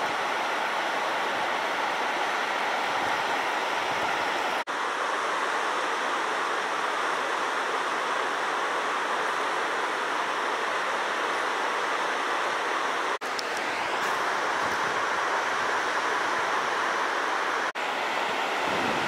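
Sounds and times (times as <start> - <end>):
water rushing over rapids: 0.0 - 19.0.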